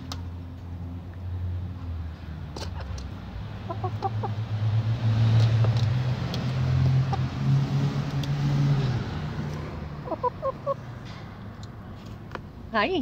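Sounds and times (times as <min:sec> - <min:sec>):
vehicle engine droning: 0:00.0 - 0:12.4
chicken clucking: 0:03.7 - 0:04.4, 0:10.0 - 0:10.8.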